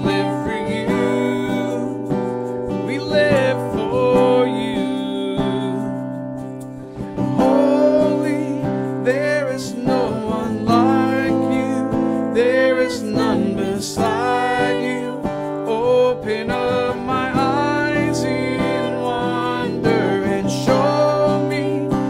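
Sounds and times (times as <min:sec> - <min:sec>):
acoustic guitar strummed: 0:00.0 - 0:22.0
voices singing: 0:09.1 - 0:22.0.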